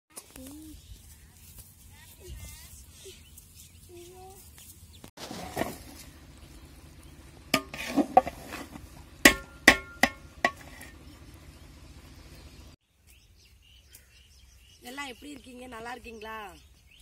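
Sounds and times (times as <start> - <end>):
metal ladle scraping pot: 7.5 - 11.0.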